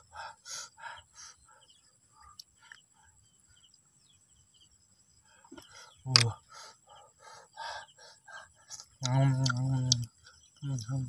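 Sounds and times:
person chewing with smacking: 8.7s - 10.1s
faint ticks: 8.7s - 11.0s.

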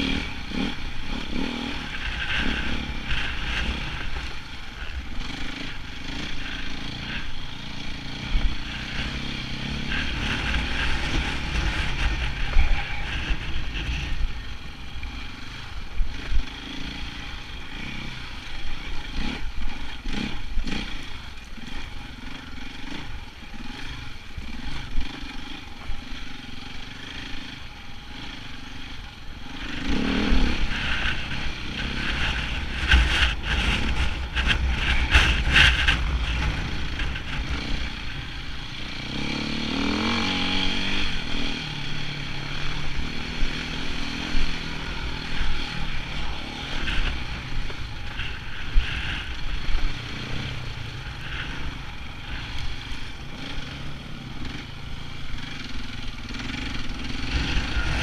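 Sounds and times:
motorcycle engine revving: 0.0s - 58.0s
motorcycle knocks and jolts: 29.6s - 41.5s, 43.2s - 58.0s.

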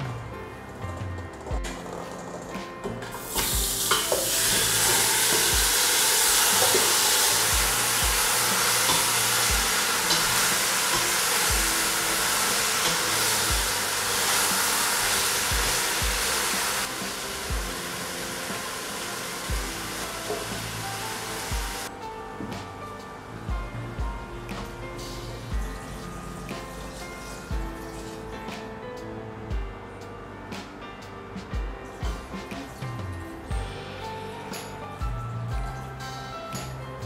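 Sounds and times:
chicken sizzling in hot oil: 3.2s - 21.9s.

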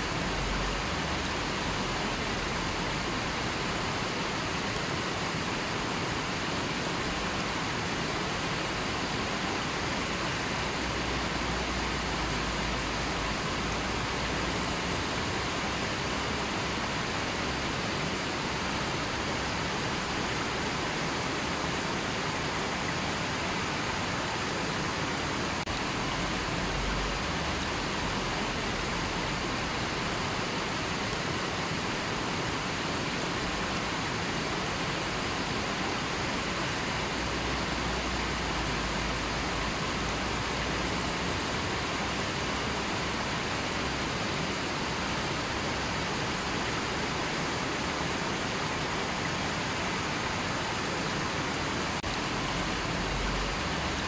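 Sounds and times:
river rushing over rocks: 0.0s - 54.0s.

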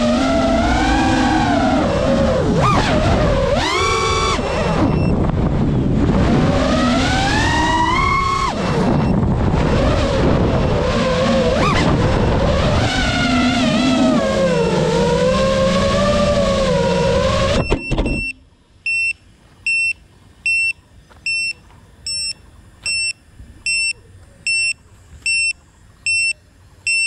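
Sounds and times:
drone motors whining: 0.0s - 27.0s
short high beeps: 4.4s - 5.2s, 17.6s - 27.0s.

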